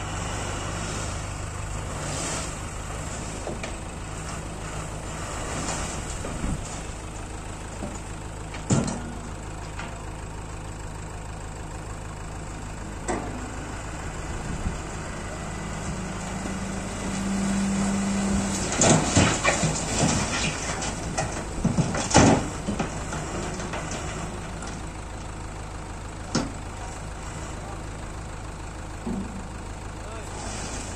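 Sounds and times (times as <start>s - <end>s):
diesel engine idling: 0.0s - 30.9s
rocks and soil clattering: 15.8s - 25.2s.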